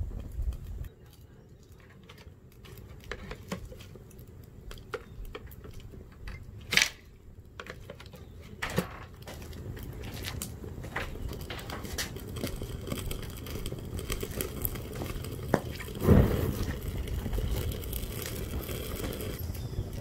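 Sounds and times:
fire crackling: 0:00.0 - 0:20.0
sharp loud pops: 0:16.0 - 0:16.7.

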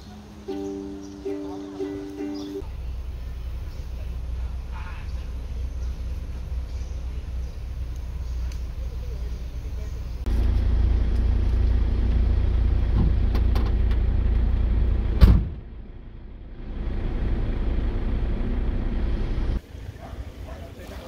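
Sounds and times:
steady low rumble: 0:02.6 - 0:20.8
tailgate slamming shut: 0:15.2 - 0:15.7.

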